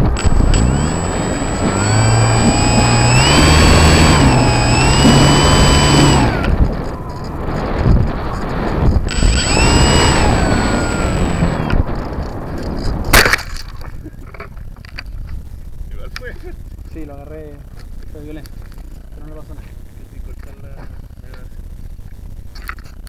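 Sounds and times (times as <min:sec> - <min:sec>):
model airplane motor whining: 0:00.0 - 0:06.8, 0:09.1 - 0:11.8
wind rush: 0:00.0 - 0:13.2.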